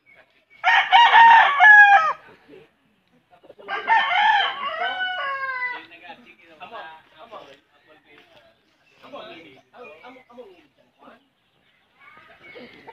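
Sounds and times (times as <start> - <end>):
rooster crowing: 0.6 - 2.2, 3.7 - 5.9.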